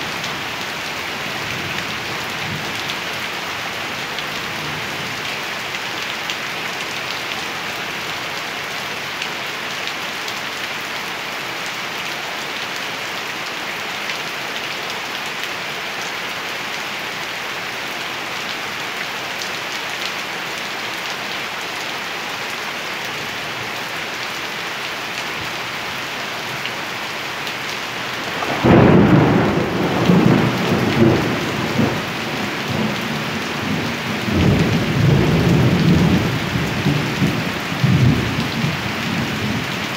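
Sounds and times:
steady rain: 0:00.0 - 0:39.9
thunder rumbling: 0:28.3 - 0:36.4.

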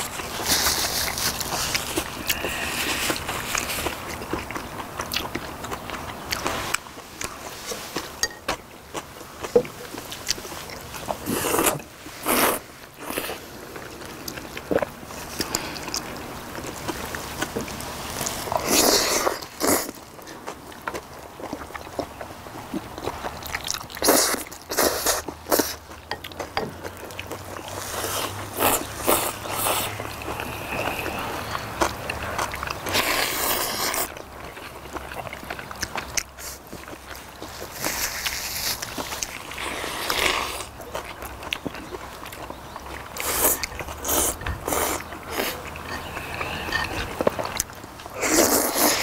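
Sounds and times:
wet chewing: 0:00.0 - 0:49.0
noodle slurps: 0:27.7 - 0:34.2, 0:48.2 - 0:49.0.

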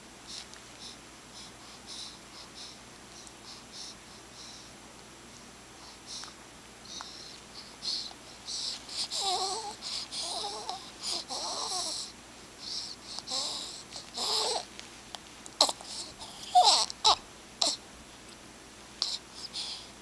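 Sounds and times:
baby cooing and grunting: 0:07.8 - 0:12.1, 0:12.8 - 0:14.7, 0:15.6 - 0:17.8.

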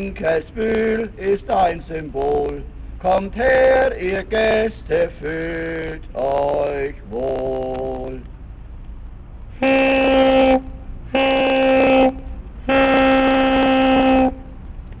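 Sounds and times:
horn blasts: 0:09.5 - 0:14.6.

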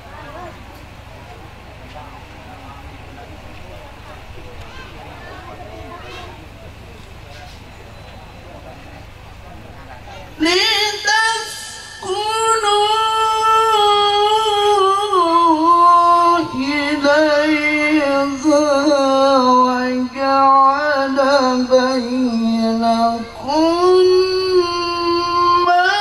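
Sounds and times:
man chanting through loudspeaker: 0:10.4 - 0:26.0.

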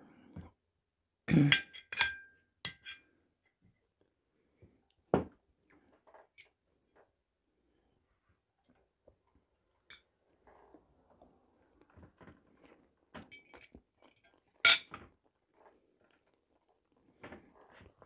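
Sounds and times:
fork clinking on china plates: 0:01.5 - 0:03.0, 0:14.6 - 0:14.9
quiet chewing: 0:03.4 - 0:18.0.

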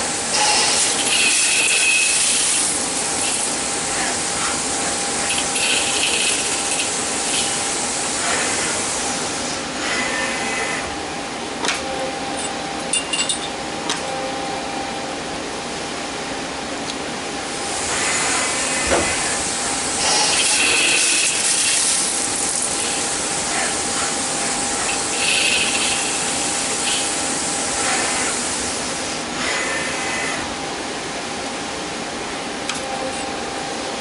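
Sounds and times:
lathe machine hum: 0:00.0 - 0:12.9, 0:14.4 - 0:34.0
coolant spray hiss: 0:17.7 - 0:29.2
cutting tool squealing: 0:24.9 - 0:26.2.

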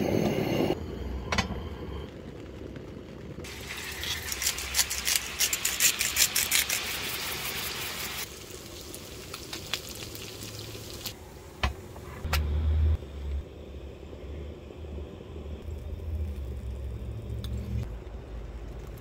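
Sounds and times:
meat sizzling in hot oil: 0:03.5 - 0:11.2.

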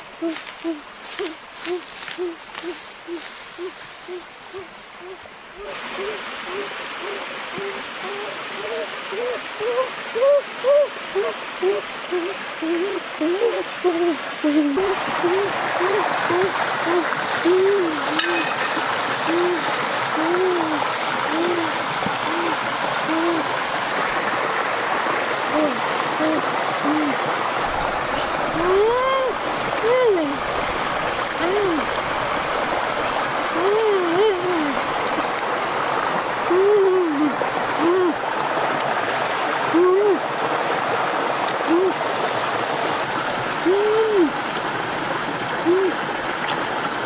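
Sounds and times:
stream running over rocks: 0:00.0 - 0:47.0
woman humming: 0:00.1 - 0:23.6, 0:25.4 - 0:30.4, 0:31.3 - 0:32.0, 0:33.5 - 0:34.8, 0:36.4 - 0:38.2, 0:39.7 - 0:40.2, 0:41.6 - 0:42.0, 0:43.6 - 0:44.4, 0:45.6 - 0:46.0
low hooting animal call: 0:00.2 - 0:23.6.

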